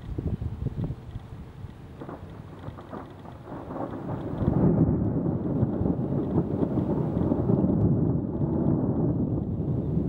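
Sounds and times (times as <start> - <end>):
thunder rumbling: 1.9 - 10.0.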